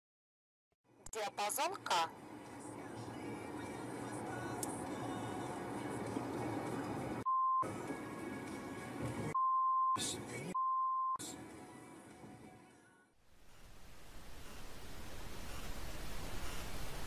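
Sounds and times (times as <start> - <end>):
censor bleeps: 7.3 - 7.6, 9.4 - 11.2.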